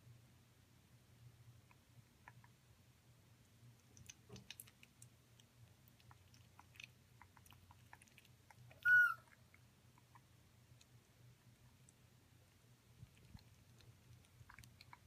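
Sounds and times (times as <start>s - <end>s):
parrot beak clicks and smacks: 3.8s - 5.1s
parrot whistle call: 8.8s - 9.2s.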